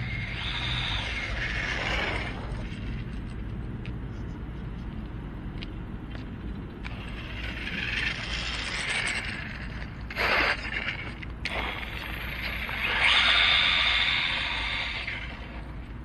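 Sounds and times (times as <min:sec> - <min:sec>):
rc car driving over rough concrete: 0:00.2 - 0:03.1, 0:06.8 - 0:15.6.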